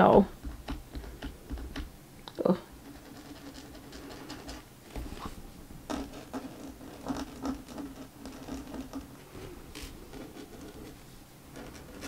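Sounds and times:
marker scratching on cover: 0:02.8 - 0:12.0.

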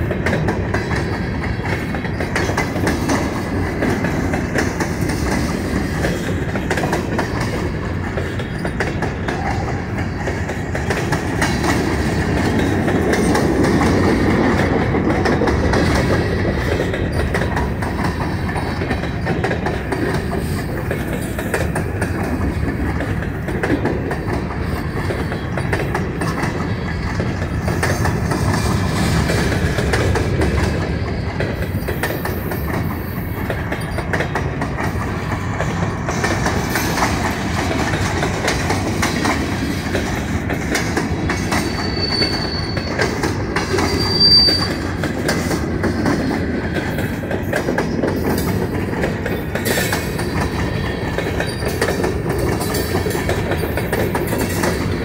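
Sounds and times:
railroad cars rumbling: 0:00.0 - 0:55.0
wheels clicking over rail joints: 0:00.0 - 0:55.0
wheel squeals: 0:08.2 - 0:09.8, 0:24.2 - 0:29.1, 0:41.4 - 0:45.0, 0:49.3 - 0:52.0.

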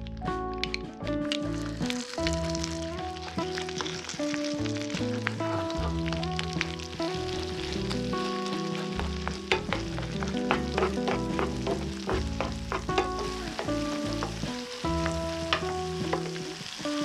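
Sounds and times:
paste sizzling in frying pan: 0:01.2 - 0:17.0
spatula scraping pan: 0:08.6 - 0:16.4.

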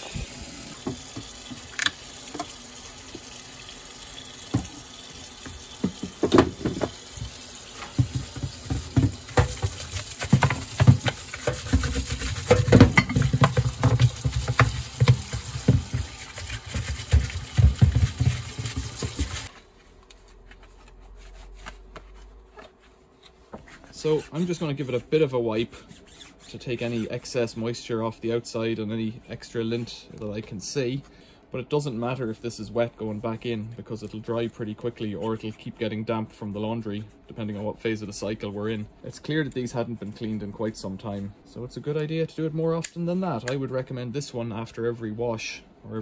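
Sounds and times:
tap water running into sink: 0:00.0 - 0:19.5
brush scrubbing plastic: 0:05.5 - 0:31.1, 0:31.8 - 0:41.3
plastic knocks and clatters: 0:05.8 - 0:07.0, 0:07.8 - 0:16.1, 0:16.7 - 0:19.5.

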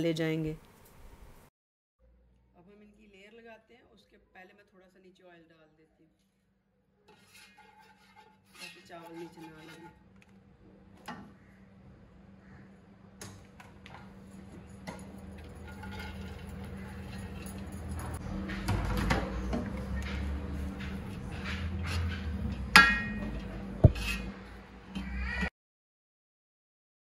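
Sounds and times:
utensils clinking against pot: 0:07.1 - 0:10.0, 0:14.0 - 0:24.4
steady low hum: 0:09.8 - 0:25.0.

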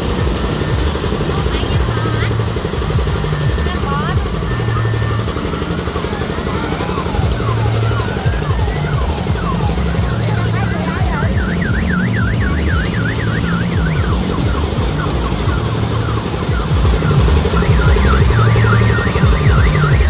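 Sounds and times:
warbling electronic siren: 0:00.0 - 0:20.0.

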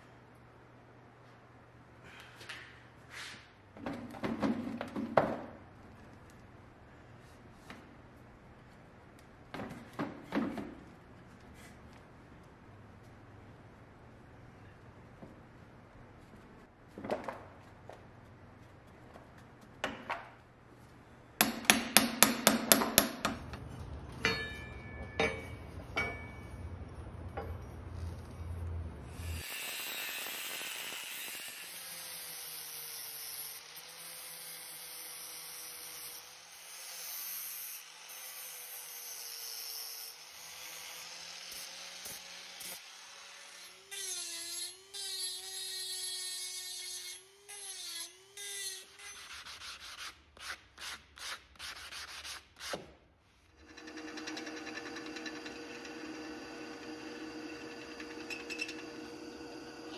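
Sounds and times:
hammer striking metal casting: 0:21.4 - 0:23.4, 0:24.2 - 0:26.5
angle grinder cutting metal: 0:29.1 - 0:49.4, 0:53.6 - 0:59.9.

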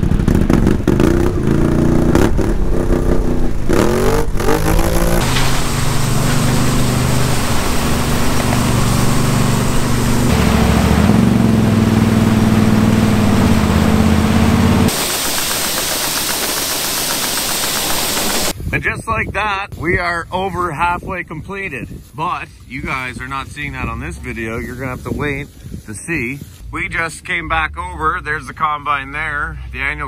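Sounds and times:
vehicle engine revving: 0:00.0 - 0:18.5.

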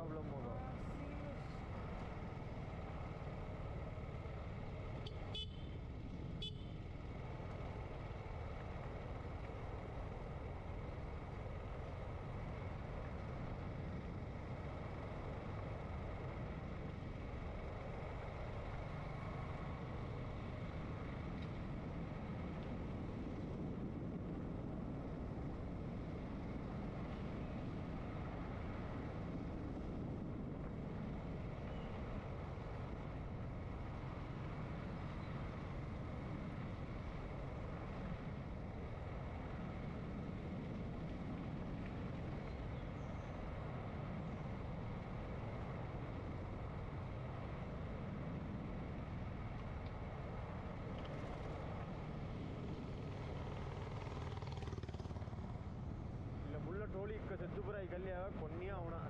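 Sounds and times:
road noise: 0:00.0 - 0:59.0
motorcycle engine: 0:52.8 - 0:56.4.

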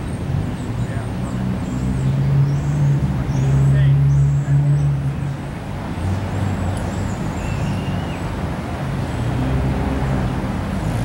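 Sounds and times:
traffic engine hum: 0:00.0 - 0:11.0.

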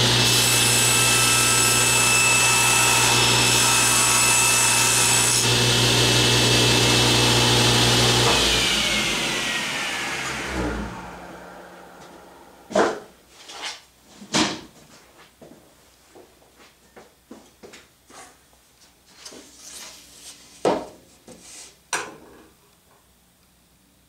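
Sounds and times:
saw blade winding down: 0:00.0 - 0:12.6
table saw cutting plywood: 0:00.0 - 0:13.0.

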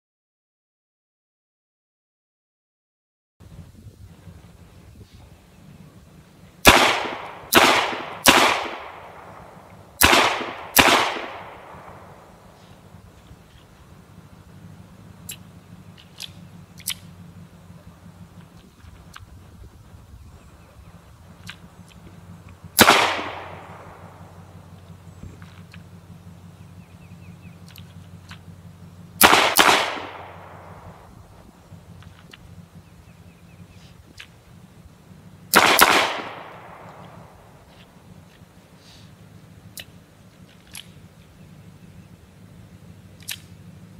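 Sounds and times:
pistol shots: 0:06.6 - 0:12.6, 0:22.8 - 0:24.5, 0:29.2 - 0:31.1, 0:35.5 - 0:37.6.

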